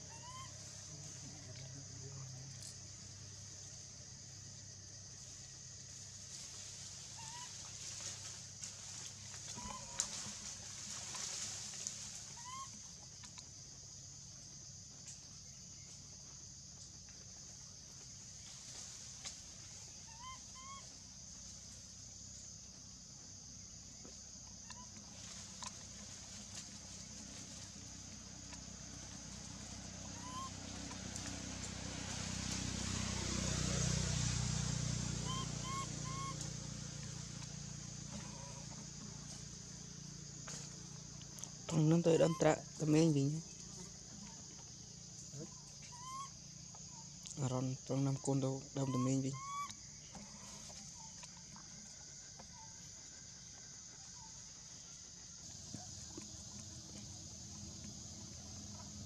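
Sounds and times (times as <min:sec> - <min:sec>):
constant high hiss: 0:00.0 - 0:59.0
high insect drone: 0:00.0 - 0:59.0
low motor hum: 0:24.9 - 0:41.7, 0:49.7 - 0:59.0
short chirping calls: 0:30.0 - 0:31.2, 0:35.2 - 0:36.6.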